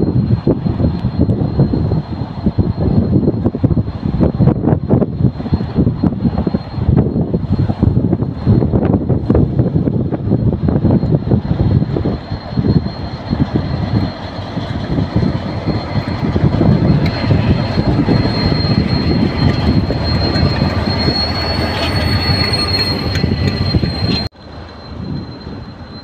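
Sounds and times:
distant train rumble: 0.0s - 26.0s
high-pitched whine: 0.0s - 26.0s
locomotive engine rumble: 0.0s - 26.0s
wheels clicking on track: 0.1s - 26.0s.

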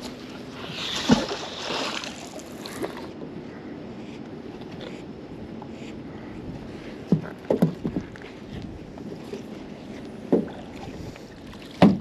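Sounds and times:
low background rumble: 0.0s - 12.0s
hard knocks on a boat: 7.1s - 8.0s, 10.3s - 10.6s, 11.8s - 12.0s.

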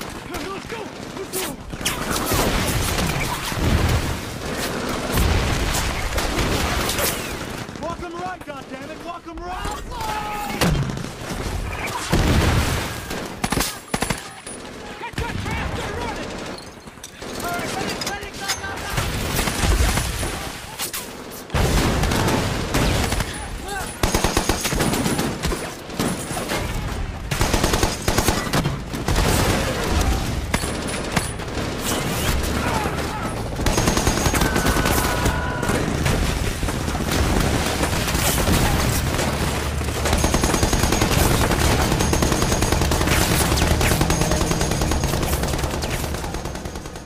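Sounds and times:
machine-gun and rifle fire: 0.0s - 9.1s, 21.2s - 47.0s.

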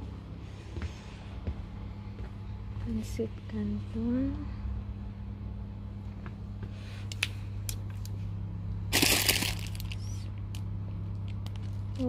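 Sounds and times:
steady low hum: 0.0s - 12.0s
plastic crinkling: 8.9s - 10.3s, 11.1s - 12.0s.

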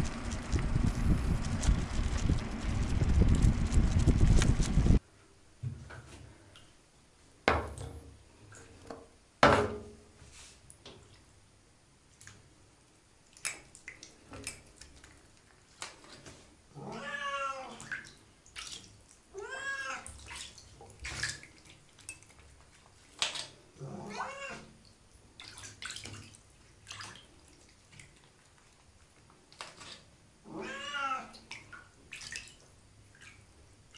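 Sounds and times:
cat meowing: 16.8s - 17.8s, 19.4s - 20.1s, 23.9s - 24.7s, 30.5s - 31.4s.

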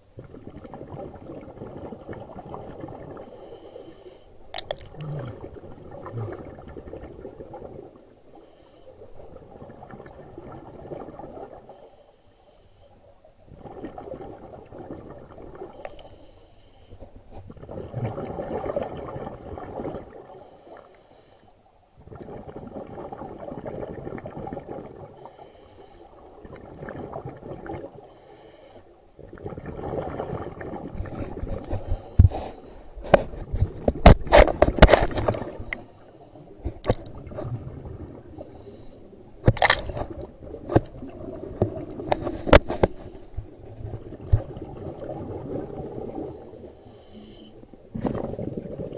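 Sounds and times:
diver exhaling bubbles: 4.4s - 7.9s, 17.5s - 20.3s, 47.8s - 48.9s.

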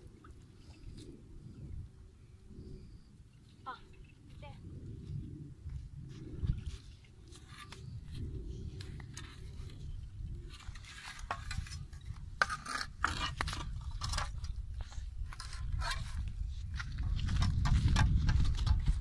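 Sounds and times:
steady low rumble: 0.0s - 12.5s
shovel and hoe scraping and knocking: 10.5s - 19.0s.

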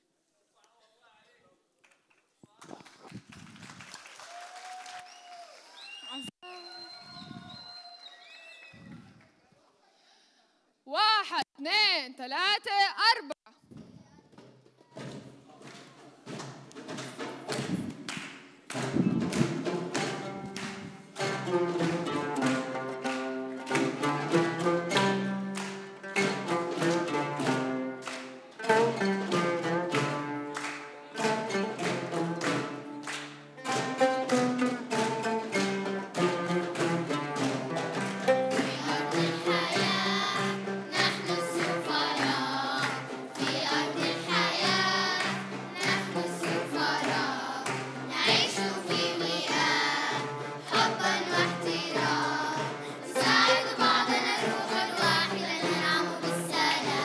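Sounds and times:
percussive beat: 14.4s - 57.0s
plucked string ensemble playing: 18.7s - 57.0s
children's choir singing: 37.1s - 57.0s.

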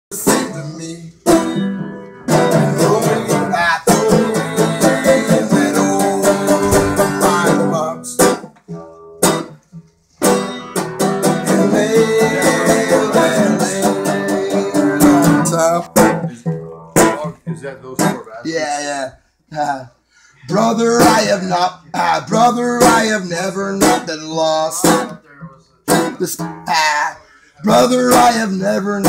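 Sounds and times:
banjo picked fast: 0.1s - 9.5s, 10.2s - 18.3s, 25.9s - 26.8s.

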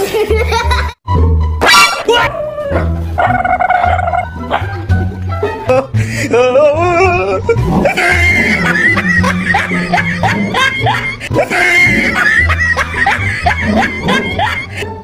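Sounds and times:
background music: 0.0s - 15.0s
person laughing hard: 5.7s - 15.0s.

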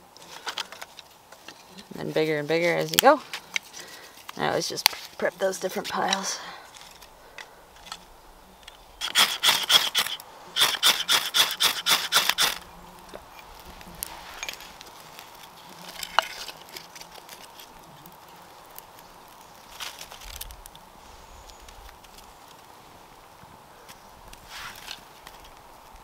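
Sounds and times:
handling of sticks: 0.0s - 26.0s
hand saw cutting wood: 9.0s - 12.6s.

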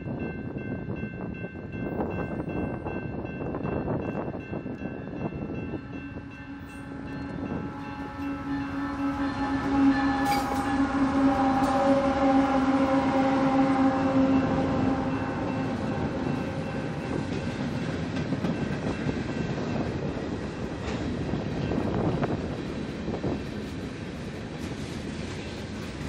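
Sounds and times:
locomotive humming: 0.0s - 26.0s
train wheels rumbling on rails: 0.0s - 26.0s.

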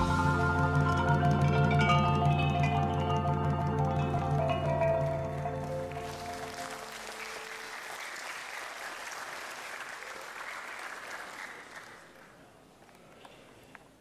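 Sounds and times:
music: 0.0s - 7.4s
audience applauding: 0.0s - 13.4s.

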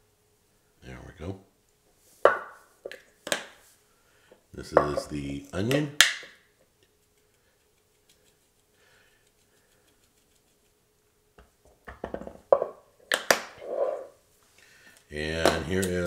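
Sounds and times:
jar clicking and knocking on wood: 4.8s - 5.1s
powder shaken from spice jar: 7.0s - 10.8s.

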